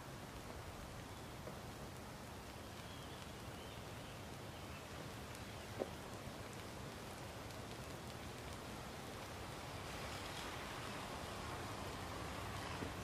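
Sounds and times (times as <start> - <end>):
faint outdoor hiss: 0.0 - 13.0
faint ticks: 0.3 - 9.4.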